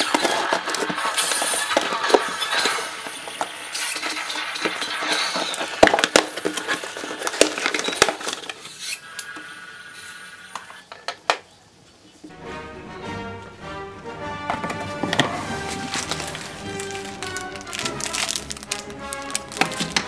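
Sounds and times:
cardboard scraping and rustling: 0.0s - 8.6s, 14.6s - 20.0s
scissors slitting packing tape: 15.8s - 20.0s.

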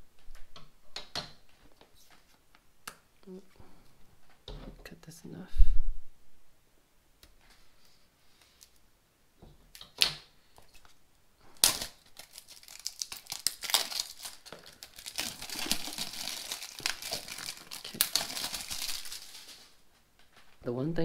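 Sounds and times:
plastic wrap crinkling: 10.7s - 20.6s
sharp plastic rips: 11.5s - 19.8s.

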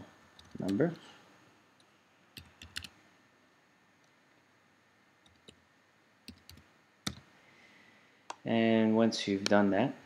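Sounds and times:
keyboard keystrokes: 2.4s - 2.9s, 6.3s - 7.2s.

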